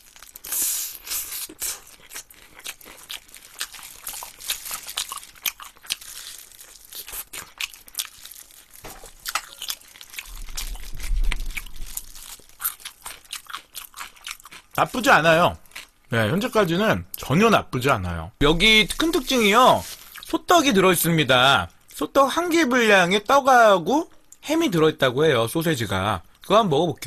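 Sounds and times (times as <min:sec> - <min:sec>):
chewing crunches: 0:00.0 - 0:15.0, 0:15.6 - 0:16.0
low rumble: 0:10.3 - 0:12.4.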